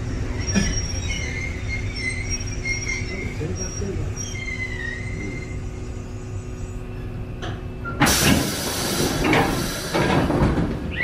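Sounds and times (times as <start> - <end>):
train car humming: 0.0 - 11.0
pneumatic door air hiss: 8.0 - 10.2.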